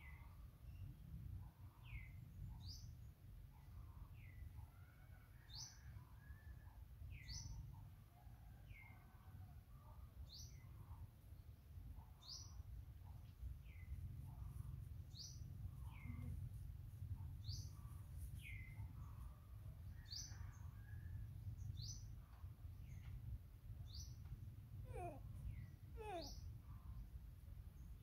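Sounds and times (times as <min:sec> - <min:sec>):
faint low rumble: 0:09.7 - 0:28.0
bird calling: 0:24.9 - 0:25.2, 0:26.0 - 0:26.4.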